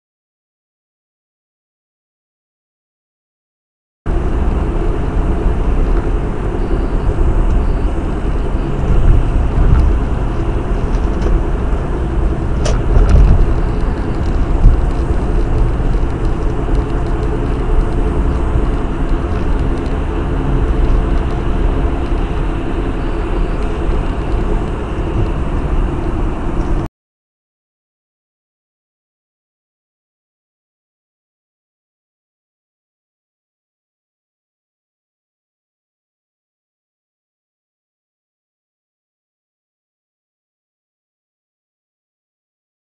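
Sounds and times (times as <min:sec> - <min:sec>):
road and engine noise inside car: 0:04.1 - 0:26.9.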